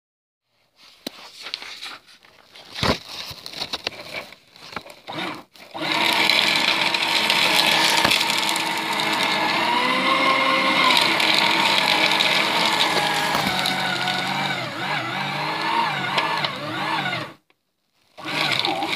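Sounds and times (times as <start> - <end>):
paper rustling: 0.8 - 5.7, 10.7 - 14.7
paper shredder motor: 4.7 - 17.5, 18.1 - 18.9.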